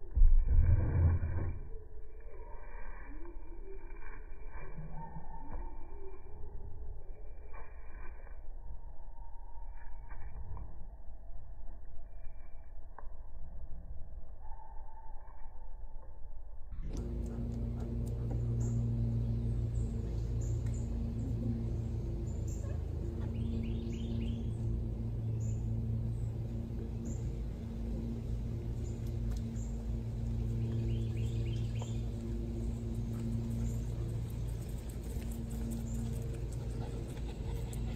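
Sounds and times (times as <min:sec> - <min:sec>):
steady low hum: 0:00.0 - 0:14.6, 0:15.5 - 0:37.9
birds chirping: 0:18.1 - 0:37.9.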